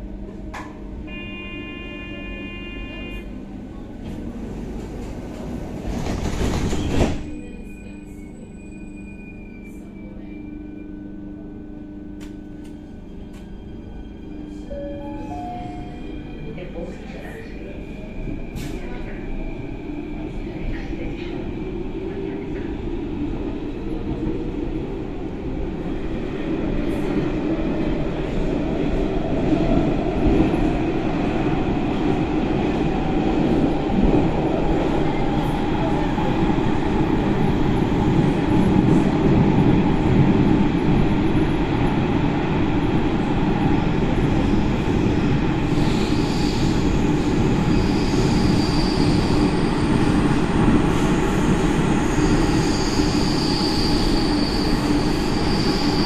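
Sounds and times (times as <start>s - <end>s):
train wheels rumbling on rail: 3.7s - 8.6s
high-pitched wheel squeal: 47.7s - 49.6s, 52.2s - 56.0s.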